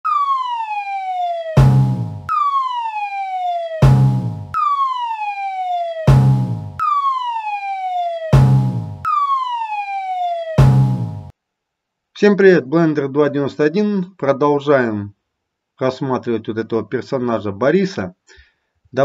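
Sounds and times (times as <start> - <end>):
whistle tone sliding down: 9.0 - 10.9.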